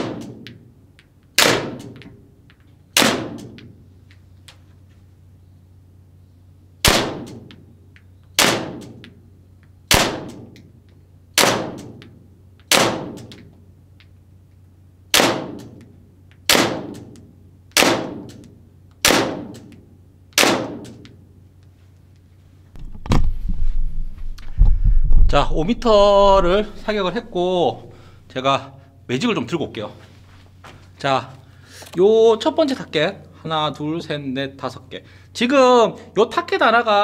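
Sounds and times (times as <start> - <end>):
airsoft pistol shots: 0.0 - 0.5, 1.4 - 2.0, 2.9 - 3.6, 6.8 - 7.5, 8.4 - 9.0, 9.9 - 10.6, 11.4 - 12.0, 12.6 - 13.4, 15.1 - 15.8, 16.4 - 18.4, 19.0 - 19.7, 20.4 - 21.0.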